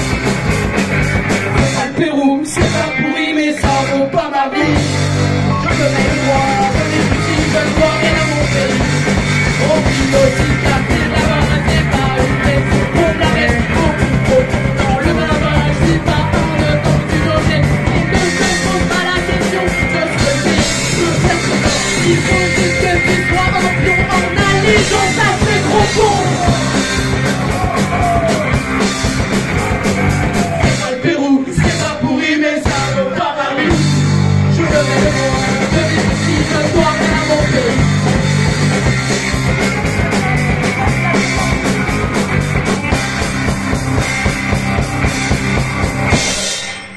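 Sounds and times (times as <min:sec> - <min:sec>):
punk rock band playing live: 0:00.0 - 0:46.9
shouted vocals: 0:09.5 - 0:37.9, 0:39.4 - 0:42.9.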